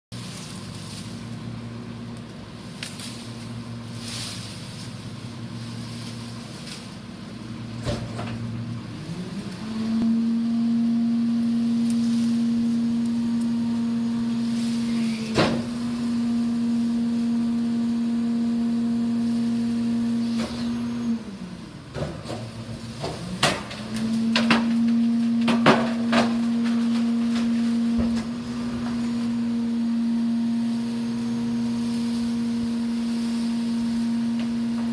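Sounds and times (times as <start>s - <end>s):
garbage truck diesel engine: 0.1s - 34.9s
tree branches cracking and snapping: 2.1s - 3.6s.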